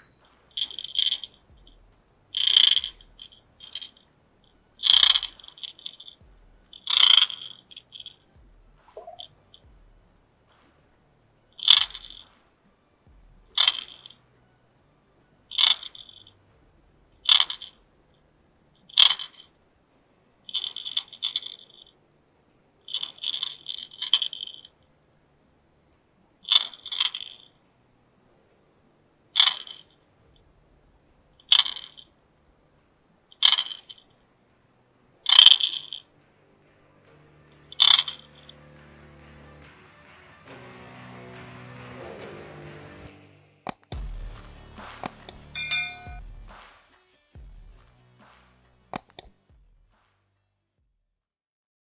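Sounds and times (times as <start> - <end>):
faint music: 0.0 - 50.8
fishing lure rattling underwater: 0.5 - 1.5, 2.3 - 4.0, 4.8 - 6.2, 6.8 - 8.2, 9.0 - 9.4, 11.6 - 12.3, 13.5 - 14.2, 15.5 - 16.3, 17.2 - 17.8, 18.9 - 19.5, 20.5 - 21.9, 22.9 - 24.7, 26.5 - 27.5, 29.4 - 30.0, 31.4 - 32.1, 33.4 - 34.0, 35.3 - 36.0, 37.8 - 38.6.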